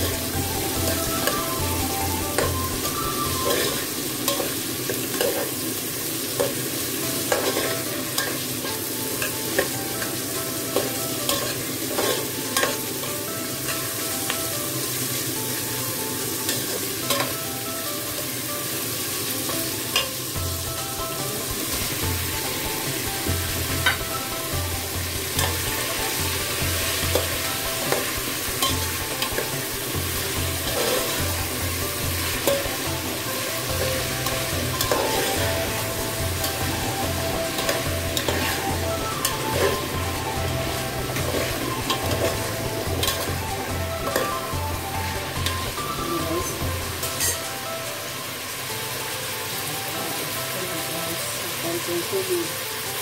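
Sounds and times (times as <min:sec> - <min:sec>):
vegetables sizzling in a pot: 0:00.0 - 0:53.0
metal spoon scraping a pot: 0:03.4 - 0:04.5, 0:30.6 - 0:31.2.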